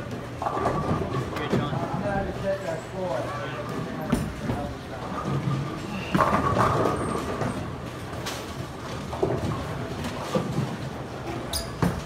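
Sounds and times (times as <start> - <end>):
bowling balls rolling: 3.7 - 12.0.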